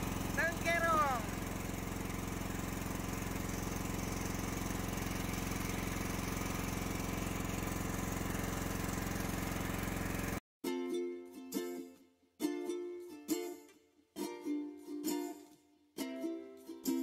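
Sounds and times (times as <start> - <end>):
boat engine running: 0.0 - 10.4
ukulele music: 10.6 - 17.0.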